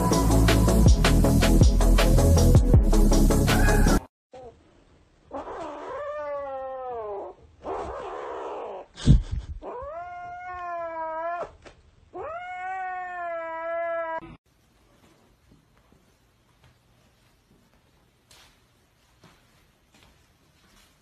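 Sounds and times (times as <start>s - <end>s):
kitten yowling: 5.3s - 8.9s, 9.6s - 14.2s.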